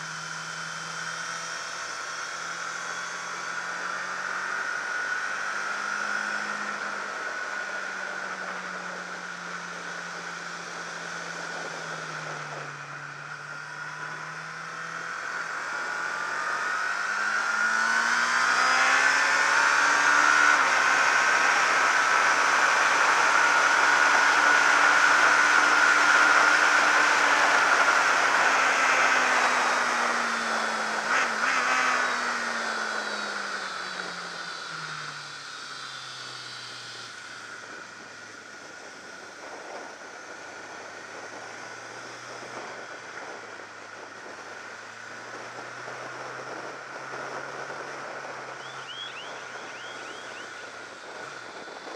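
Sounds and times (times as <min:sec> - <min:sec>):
racing motorcycle engine: 0:00.0 - 0:51.9
wind rushing over microphone: 0:37.6 - 0:51.9.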